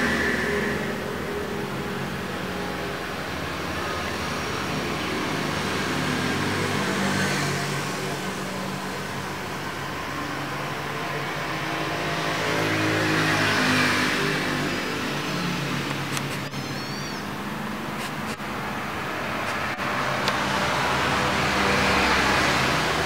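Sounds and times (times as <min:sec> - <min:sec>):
motor vehicles passing: 0:00.0 - 0:23.0.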